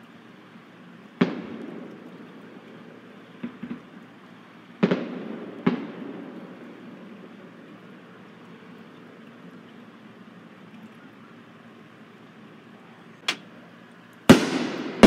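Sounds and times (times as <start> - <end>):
fireworks bangs with rumbling echo: 1.0 - 4.0, 4.6 - 8.0, 14.2 - 15.0
faint firework pops: 1.2 - 2.2, 3.4 - 4.0, 4.8 - 6.2, 14.2 - 15.0.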